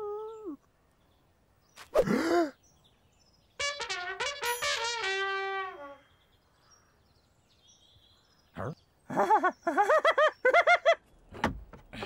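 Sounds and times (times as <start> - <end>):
faint bird chirps: 5.9 - 10.6.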